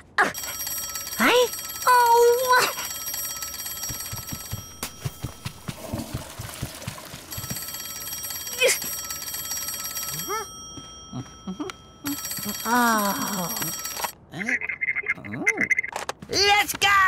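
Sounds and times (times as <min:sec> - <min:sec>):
high ringing bell: 0:00.3 - 0:14.2.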